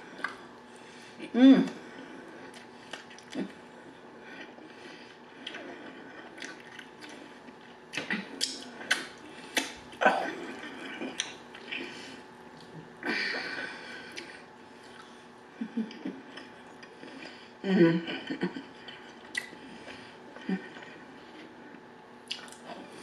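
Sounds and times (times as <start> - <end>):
wet chewing: 4.3 - 10.0.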